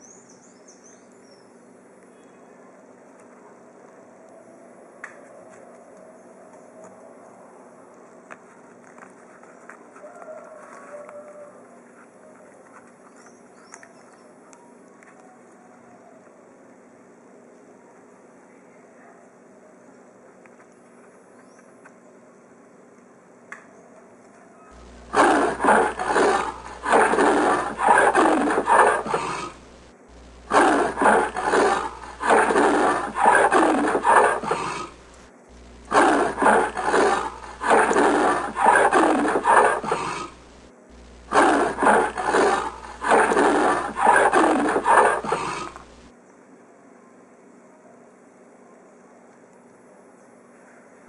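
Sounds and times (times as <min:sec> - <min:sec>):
leopard call: 0:24.8 - 0:40.5, 0:41.1 - 0:46.0.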